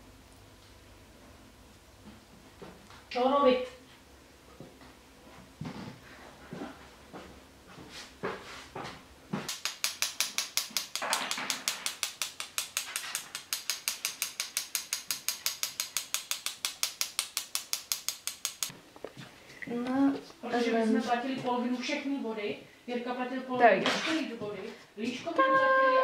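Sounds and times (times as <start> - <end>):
rapid mechanical clicking: 9.5 - 18.7.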